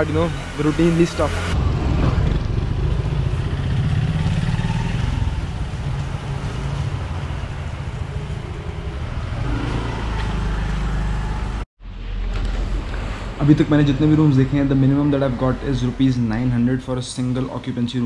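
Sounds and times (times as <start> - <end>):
motorcycles passing: 0.0 - 11.6
low street rumble: 0.0 - 18.0
motor traffic: 0.0 - 18.0.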